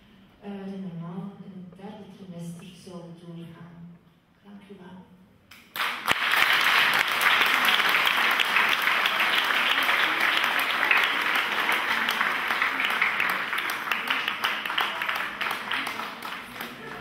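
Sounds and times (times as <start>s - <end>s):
crowd applauding: 5.7s - 17.0s.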